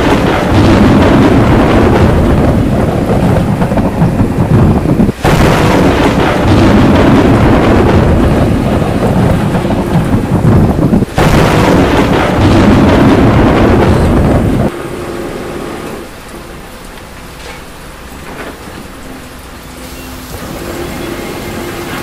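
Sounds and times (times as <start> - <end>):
rolling thunder: 0.0 - 16.7
rain falling: 0.0 - 22.0.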